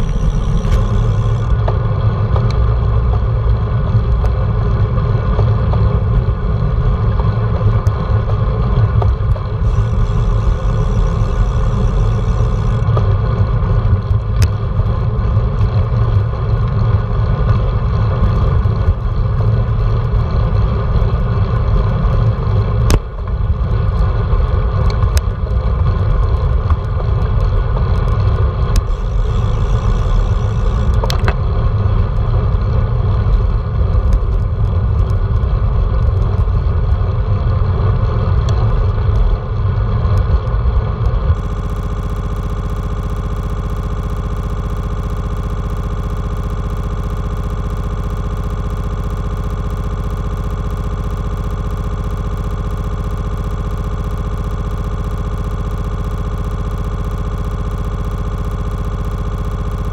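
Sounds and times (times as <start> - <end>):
sharp clicks: 0.0 - 1.8, 9.0 - 13.1, 28.7 - 31.4, 41.3 - 59.9.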